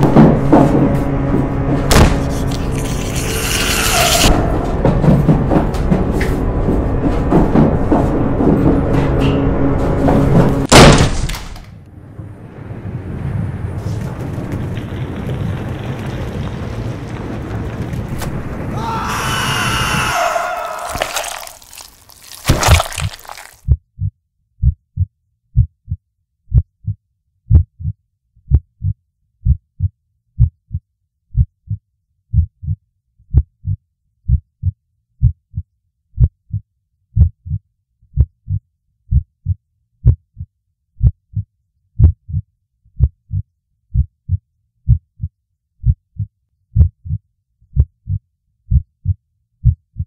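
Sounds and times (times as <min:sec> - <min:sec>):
heartbeat thumps: 0:23.7 - 0:36.6, 0:37.2 - 0:37.6, 0:38.2 - 0:41.4, 0:42.0 - 0:42.4, 0:43.0 - 0:47.2, 0:47.8 - 0:50.0.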